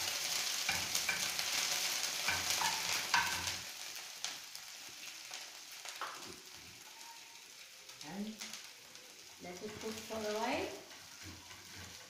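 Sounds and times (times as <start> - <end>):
spices sizzling in hot oil: 0.0 - 12.0
metal spoon scraping and stirring: 10.9 - 12.0.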